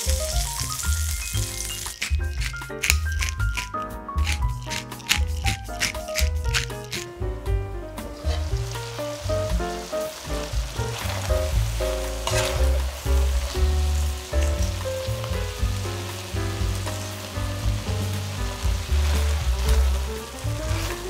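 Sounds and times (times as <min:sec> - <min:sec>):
stew sizzling in a pot: 0:00.0 - 0:07.2, 0:08.0 - 0:21.0
background music with steady bass: 0:00.0 - 0:21.0
spatula stirring in a pot: 0:10.5 - 0:13.5.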